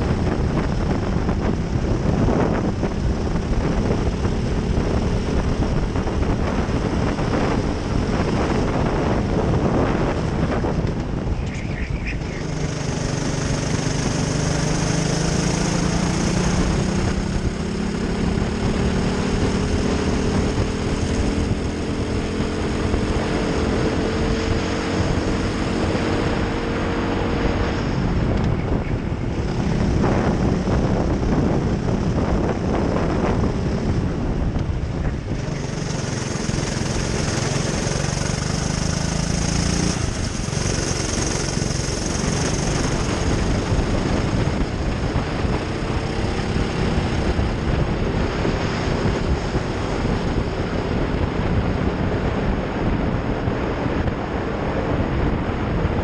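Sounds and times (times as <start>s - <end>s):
racing kart engine accelerating: 0.0s - 34.6s, 35.2s - 51.9s
wind over microphone: 0.0s - 56.0s.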